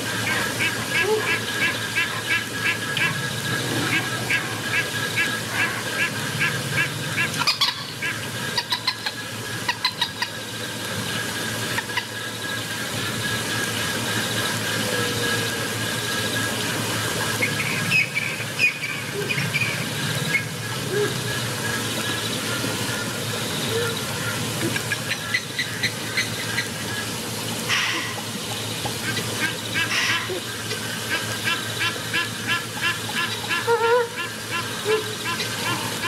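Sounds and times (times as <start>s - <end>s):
high-pitched animal calls: 27.7s - 28.2s, 29.1s - 36.0s.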